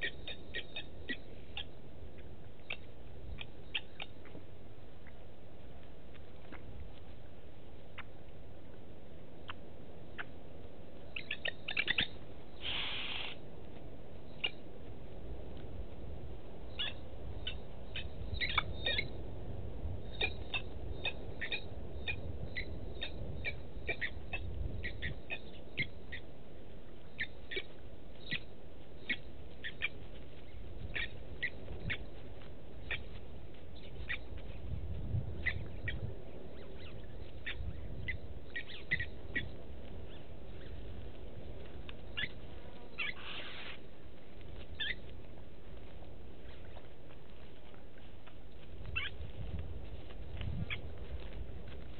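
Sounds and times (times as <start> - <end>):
lapwing tink calls: 0.0 - 4.4, 7.9 - 8.2, 9.4 - 10.4, 11.0 - 13.4, 14.2 - 14.7, 16.7 - 19.2, 20.0 - 26.4, 27.0 - 34.7, 35.4 - 41.0, 41.9 - 43.8, 44.6 - 45.1, 48.9 - 49.2, 50.6 - 50.9
harsh bird call: 11.4 - 13.4.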